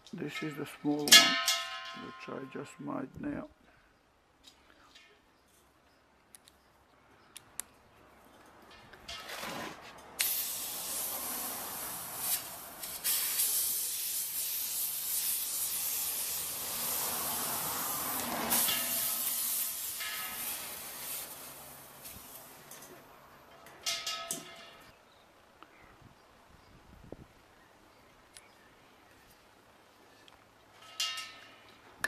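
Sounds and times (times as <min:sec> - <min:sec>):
compressed air hissing: 0:10.2 - 0:22.7.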